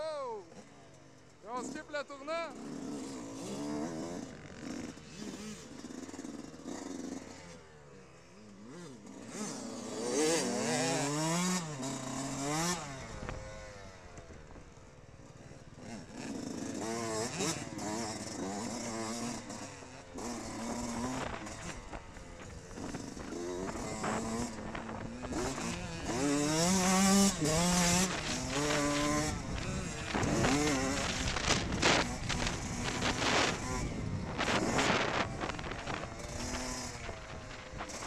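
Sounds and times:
dirt bike engines revving: 0:00.0 - 0:38.0
wind noise on microphone: 0:21.1 - 0:38.0.

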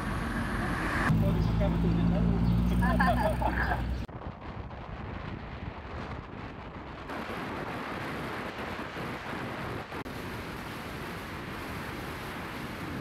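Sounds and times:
road noise: 0:00.0 - 0:04.1
wind rushing over microphone: 0:03.2 - 0:13.0.

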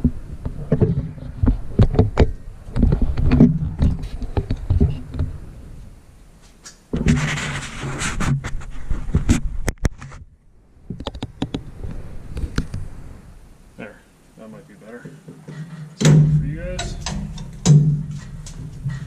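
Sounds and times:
rubbing against microphone: 0:06.9 - 0:10.3, 0:18.0 - 0:19.0.

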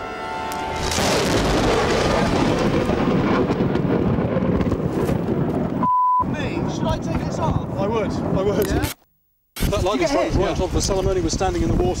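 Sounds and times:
thunderclap and rumble: 0:00.7 - 0:08.6.

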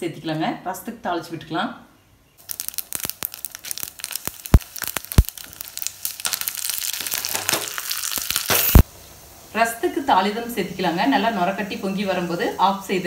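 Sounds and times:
seeds crackling and popping: 0:02.4 - 0:08.9
hot oil sizzling: 0:02.4 - 0:13.0.

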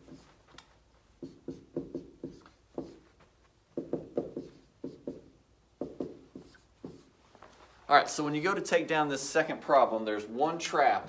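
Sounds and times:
marker writing on whiteboard: 0:00.0 - 0:03.2, 0:03.8 - 0:07.2.

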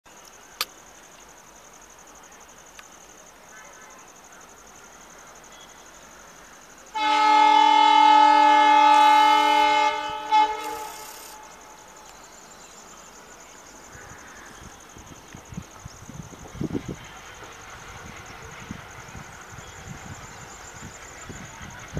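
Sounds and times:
train horn blasts: 0:06.9 - 0:11.7.

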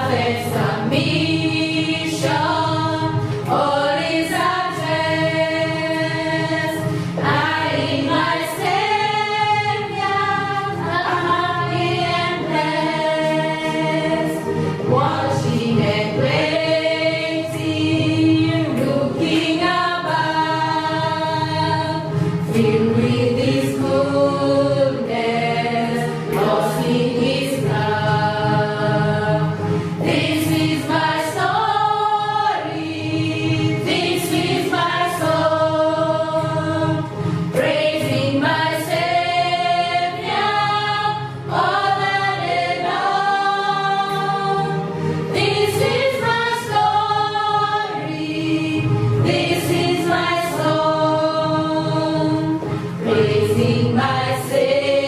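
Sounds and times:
group singing a hymn: 0:00.0 - 0:55.0.

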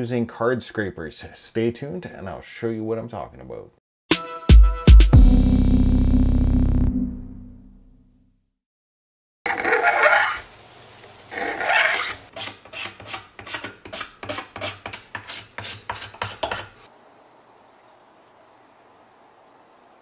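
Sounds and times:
steel scraper scraping plastic: 0:09.5 - 0:10.4, 0:11.4 - 0:16.8.

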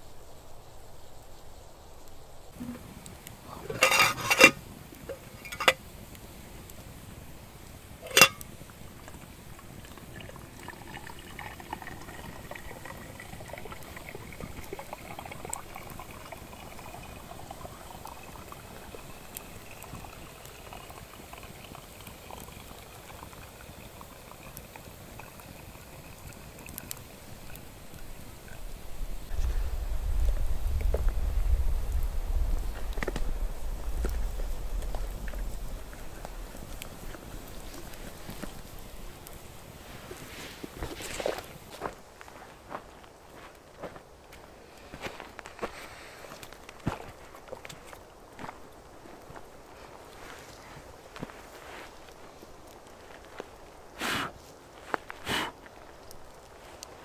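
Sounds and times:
liquid bubbling: 0:02.5 - 0:42.0
metal pot knocking: 0:03.7 - 0:05.8, 0:08.1 - 0:08.4.

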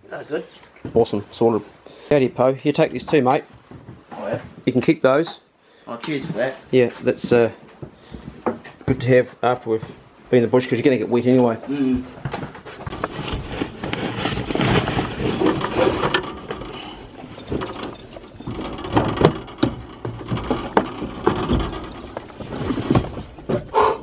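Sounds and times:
sharp clicks and knocks: 0:12.3 - 0:23.7
clothing and bag rustling: 0:12.4 - 0:19.2.

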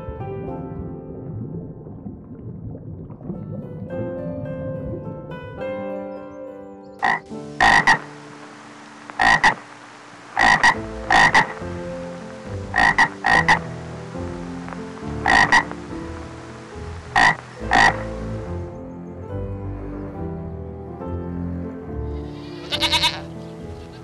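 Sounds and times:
soft background music: 0:00.0 - 0:24.0
frog croaking: 0:07.0 - 0:18.5, 0:22.5 - 0:23.3.

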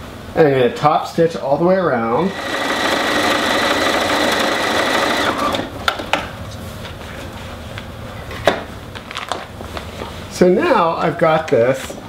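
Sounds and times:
electric sewing machine running: 0:02.2 - 0:05.8.

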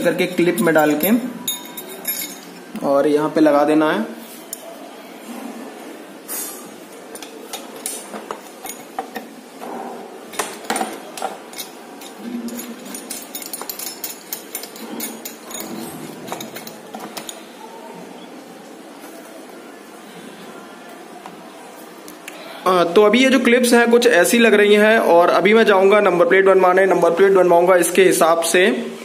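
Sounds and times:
small metal clinks and taps: 0:00.8 - 0:02.6, 0:07.1 - 0:09.3, 0:10.3 - 0:17.4.

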